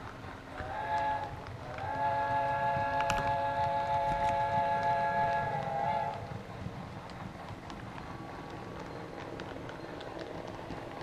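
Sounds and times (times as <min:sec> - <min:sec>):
small wheels rolling on track: 0:00.0 - 0:11.0
model train whistle: 0:00.6 - 0:06.2.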